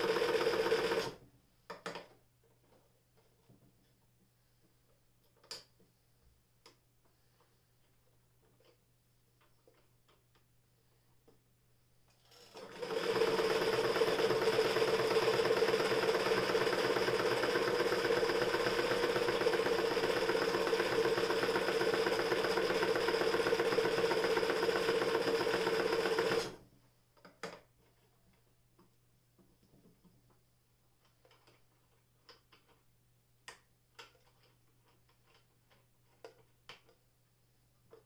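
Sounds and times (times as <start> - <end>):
electric sewing machine stitching: 0.0 - 1.2, 12.3 - 26.6.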